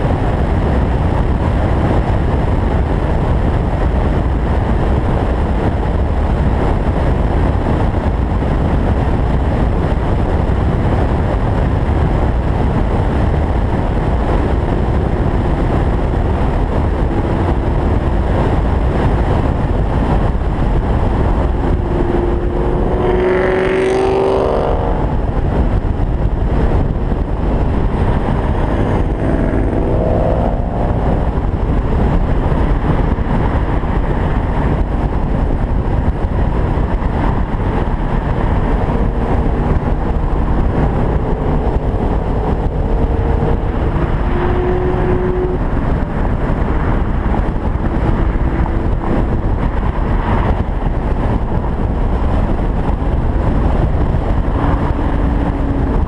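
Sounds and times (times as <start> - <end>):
engine and tyre noise: 0.0 - 56.0
wind rushing over car: 0.0 - 56.0
engine revving up: 21.7 - 25.1, 28.3 - 31.6.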